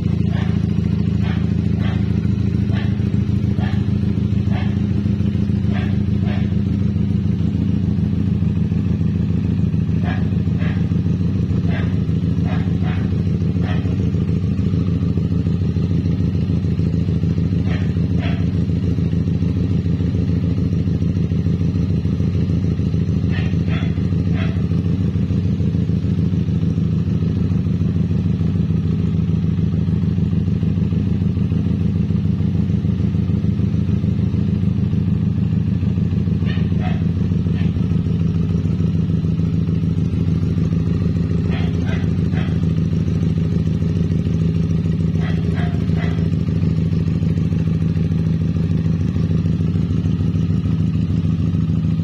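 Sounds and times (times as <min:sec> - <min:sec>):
motorcycle engine idling: 0:00.0 - 0:52.0.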